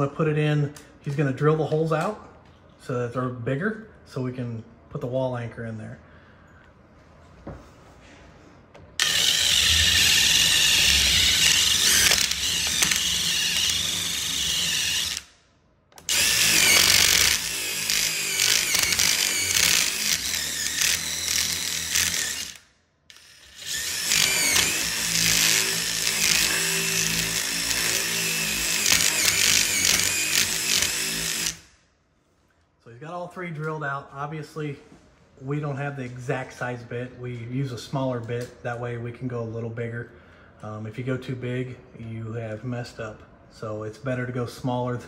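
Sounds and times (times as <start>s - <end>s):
cordless drill boring into wood: 9.0s - 15.4s, 16.0s - 31.7s.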